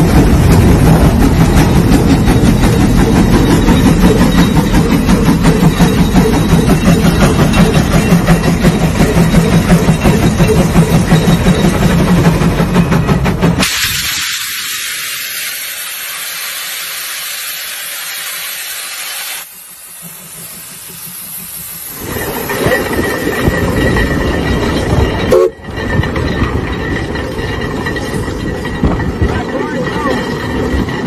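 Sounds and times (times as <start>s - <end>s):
steam engine exhaust beat: 0.0s - 22.3s
loud steam hiss: 13.5s - 23.0s.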